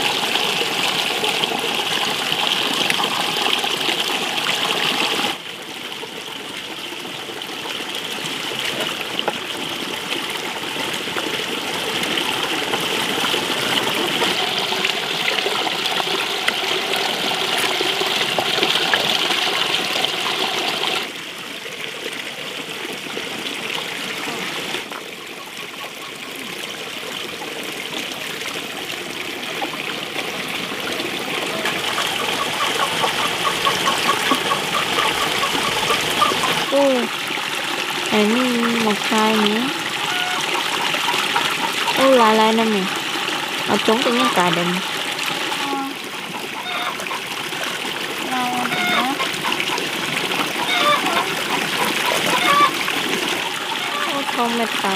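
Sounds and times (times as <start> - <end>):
tap water pouring into metal basin: 0.0 - 54.9
water splashing onto concrete: 8.3 - 21.2, 27.4 - 54.9.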